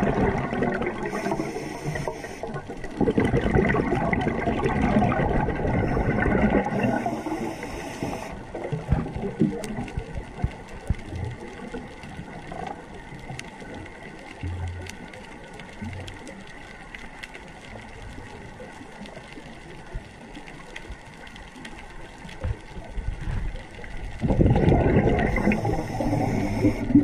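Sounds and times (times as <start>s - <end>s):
regulator bubbling: 0.0s - 11.8s, 24.1s - 27.0s
underwater low hiss: 0.0s - 27.0s
faint sharp clicks: 7.6s - 24.0s.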